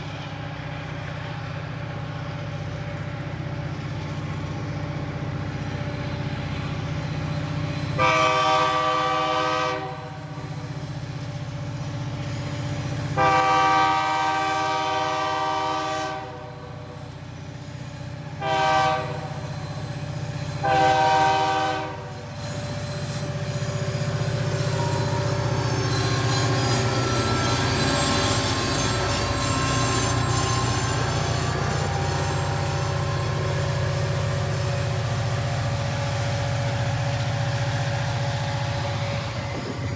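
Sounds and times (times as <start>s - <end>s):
train wheels rolling: 0.0s - 39.9s
locomotive air horn: 8.0s - 10.4s, 13.2s - 17.0s, 18.4s - 19.6s, 20.6s - 22.3s.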